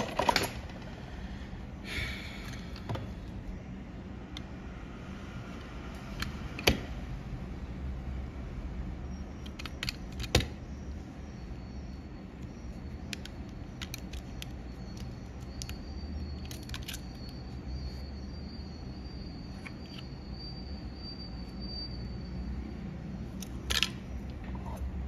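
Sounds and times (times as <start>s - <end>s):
small objects clicking and tapping: 12.4s - 15.8s, 16.4s - 17.4s.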